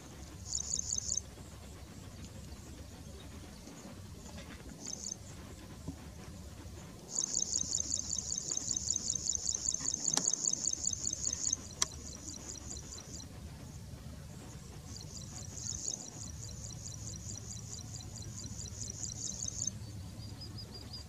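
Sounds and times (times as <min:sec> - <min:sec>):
insect trilling: 0:00.4 - 0:01.2, 0:04.8 - 0:05.2, 0:07.1 - 0:13.2, 0:14.9 - 0:19.7.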